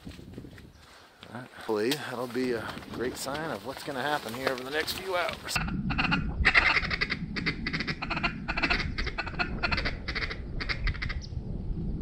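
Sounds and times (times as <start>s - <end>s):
wind rumble on microphone: 0.0s - 1.0s, 2.4s - 12.0s
raspy duck quacks: 5.6s - 11.2s.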